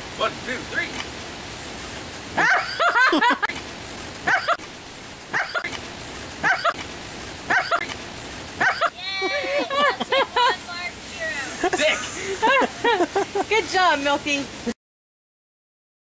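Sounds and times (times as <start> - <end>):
small dog barking: 2.4 - 2.8, 4.2 - 4.6, 5.3 - 5.8, 6.4 - 6.8, 7.5 - 7.9, 8.6 - 9.0.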